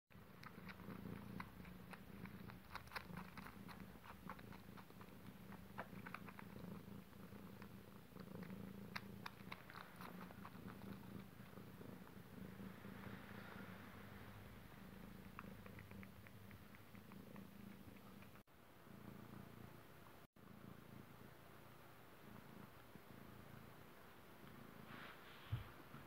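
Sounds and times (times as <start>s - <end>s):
cat purring: 0.1s - 26.0s.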